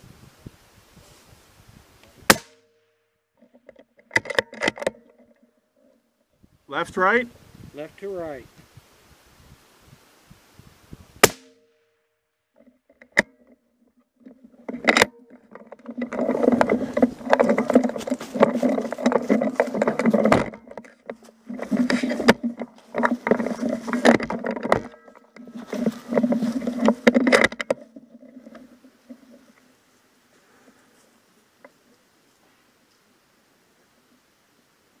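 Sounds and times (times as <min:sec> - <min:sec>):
rubbing and scraping against gun: 0:12.6 - 0:29.6.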